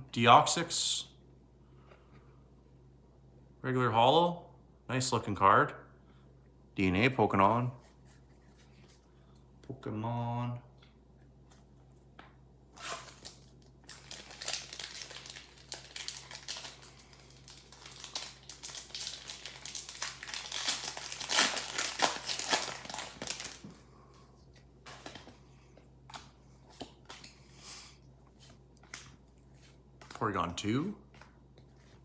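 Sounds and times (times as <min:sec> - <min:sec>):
foil wrapper crinkling: 0:12.8 - 0:23.7.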